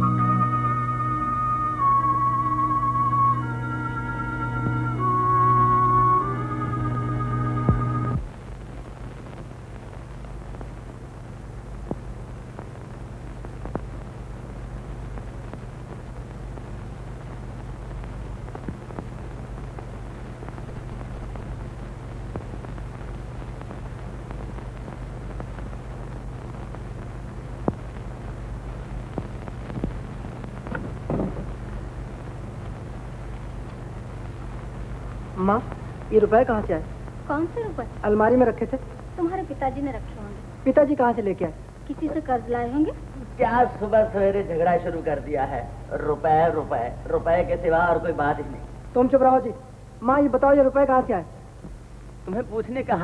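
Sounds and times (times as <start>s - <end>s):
flute music: 0.0s - 8.2s
film soundtrack hum and hiss: 0.0s - 53.0s.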